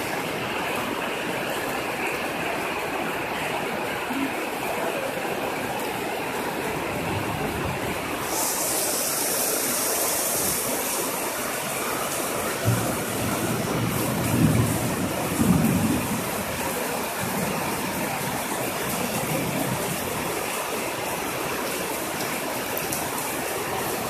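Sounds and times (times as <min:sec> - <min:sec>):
heavy rain on roof: 0:00.0 - 0:24.0
bright high hiss: 0:08.2 - 0:11.6.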